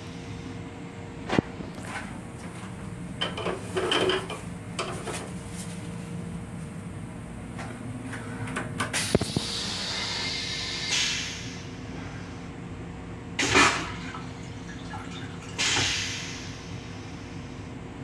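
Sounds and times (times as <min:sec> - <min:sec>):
train hum: 0:00.0 - 0:18.0
toilet flushing water hiss: 0:09.0 - 0:11.8, 0:13.4 - 0:17.4
toilet flush clicks: 0:13.4 - 0:16.1.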